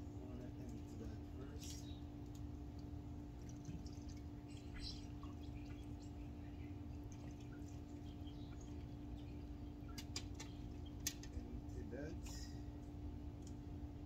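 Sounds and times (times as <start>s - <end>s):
steady low hum: 0.0s - 14.0s
water dripping: 2.2s - 11.5s.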